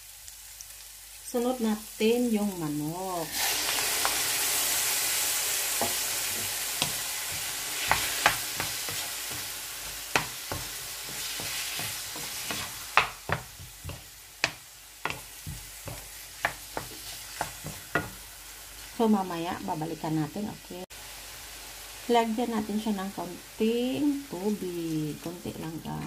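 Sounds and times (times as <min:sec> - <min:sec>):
chicken sizzling in a frying pan: 0:00.0 - 0:26.0
wooden spatula knocking on pan: 0:05.8 - 0:18.2.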